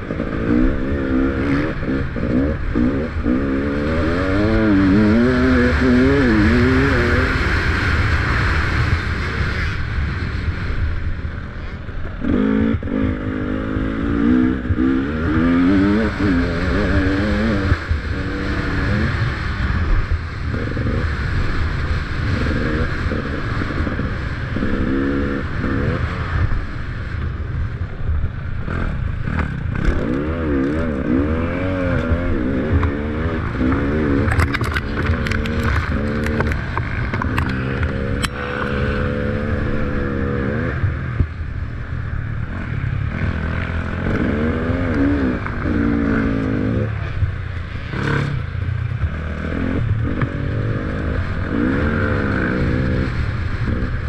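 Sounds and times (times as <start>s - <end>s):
motorcycle engine revving: 0.0s - 54.0s
sharp clicks and clatter: 33.7s - 38.8s.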